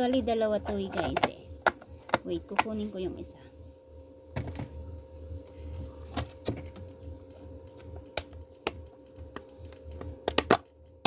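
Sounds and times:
container handling clicks and knocks: 0:00.0 - 0:02.8
low steady hum: 0:00.0 - 0:11.0.

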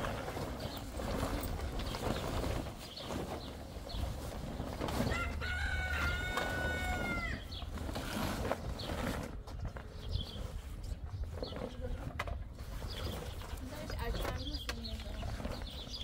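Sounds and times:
tent canvas rustling: 0:00.0 - 0:16.0
rooster crowing: 0:05.1 - 0:07.5.

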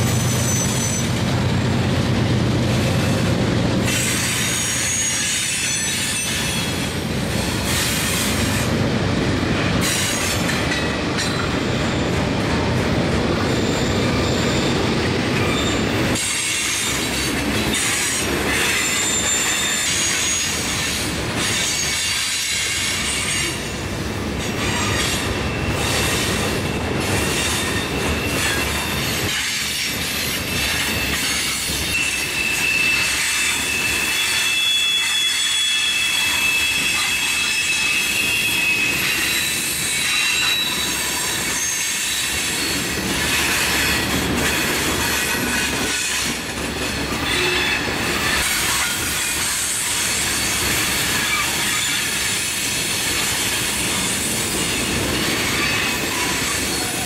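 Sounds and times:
wheel squeals: 0:00.0 - 0:01.3, 0:13.4 - 0:20.8, 0:24.6 - 0:46.3
train wheels rumbling on rail: 0:00.0 - 0:57.0.

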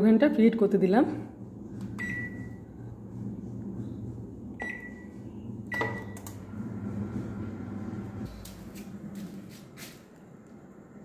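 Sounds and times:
microwave oven humming: 0:01.1 - 0:11.0.

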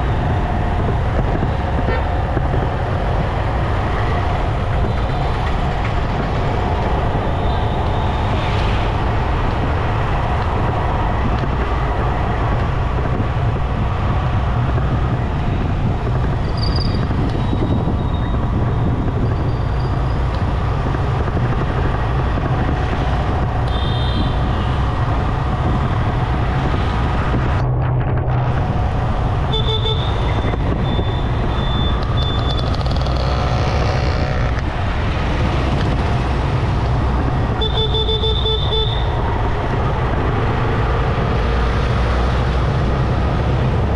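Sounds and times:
road noise: 0:00.0 - 0:43.9
vehicle horns tooting: 0:29.5 - 0:34.5, 0:37.6 - 0:39.1.

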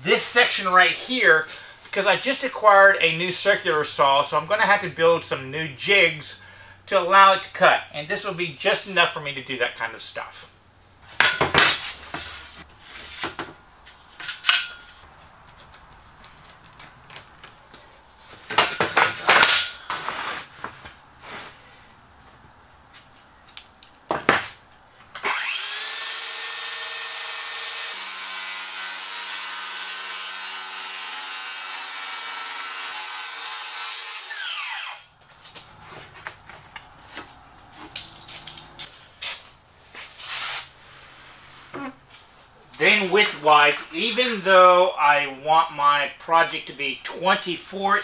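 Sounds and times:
tools knocking and clattering: 0:11.2 - 0:12.3, 0:14.2 - 0:15.0, 0:18.4 - 0:19.8, 0:23.5 - 0:24.5
circular saw cutting plywood: 0:25.2 - 0:36.3.

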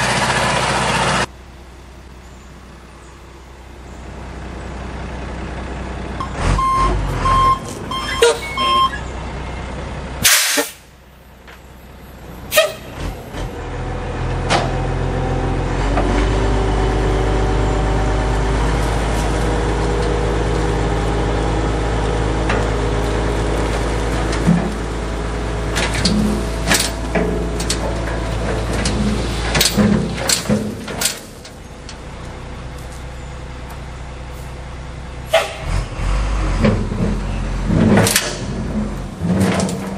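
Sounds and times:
truck engine running: 0:00.0 - 0:39.9
short beeps: 0:06.2 - 0:09.1
air hiss burst: 0:10.2 - 0:10.9
dirt sliding out of truck: 0:12.6 - 0:31.8, 0:35.3 - 0:39.9.

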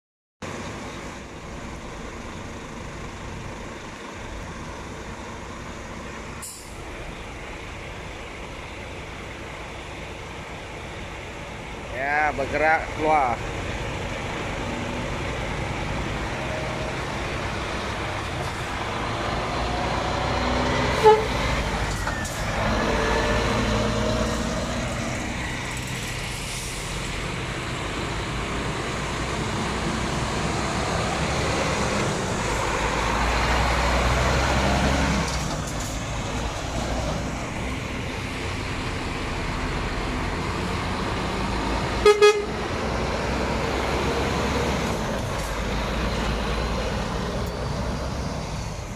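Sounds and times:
diesel trucks pulling away: 0:00.4 - 0:48.9
truck horn toots: 0:21.0 - 0:21.4, 0:42.0 - 0:42.6.

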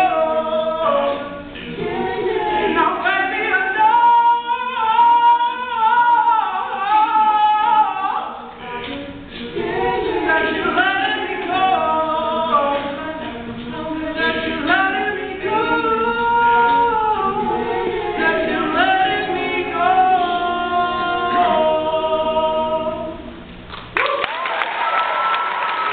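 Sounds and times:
male a cappella group singing: 0:00.0 - 0:23.3
audience applause: 0:24.0 - 0:25.9.

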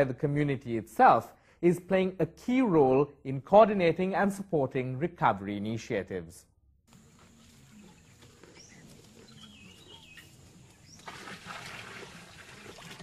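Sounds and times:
bird chirping: 0:07.1 - 0:11.1
water pouring into trough: 0:11.0 - 0:13.0.

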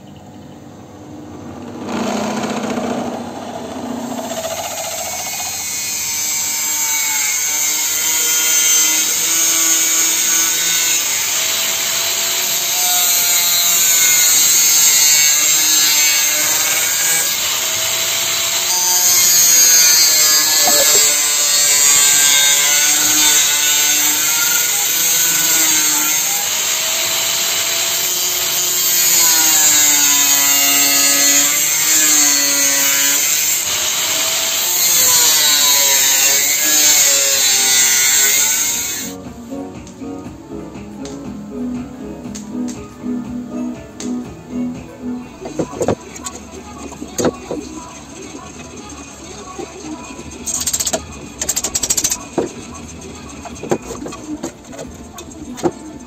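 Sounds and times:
angle grinder cutting metal: 0:01.5 - 0:39.2, 0:45.5 - 0:56.0
drill press drilling metal: 0:15.3 - 0:39.1.

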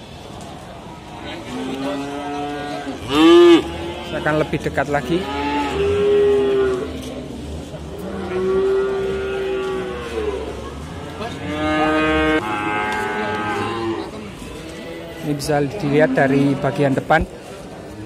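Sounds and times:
calves mooing: 0:01.5 - 0:06.9.

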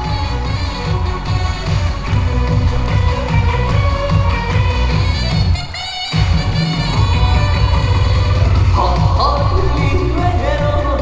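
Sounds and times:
upbeat backing track: 0:00.0 - 0:11.0
man singing into microphone: 0:08.7 - 0:11.0.

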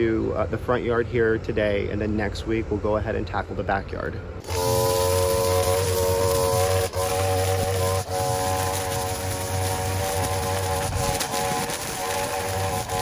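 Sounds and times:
string trimmer engine whine: 0:04.4 - 0:13.0.

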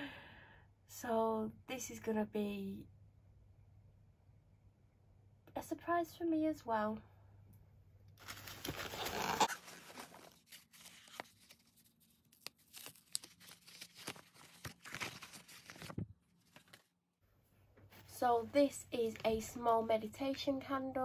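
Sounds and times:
packaging rustling and crackling: 0:08.2 - 0:16.9.

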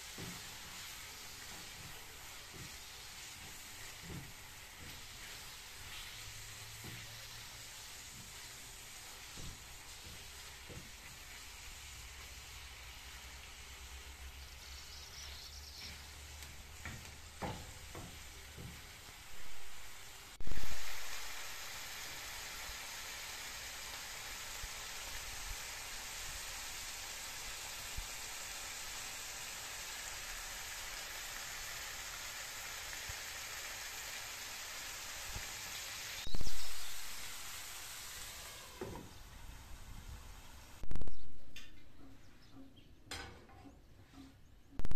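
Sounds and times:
wooden spatula scraping a pan: 0:00.0 - 0:11.6
sauce sizzling in a frying pan: 0:00.0 - 0:39.2.

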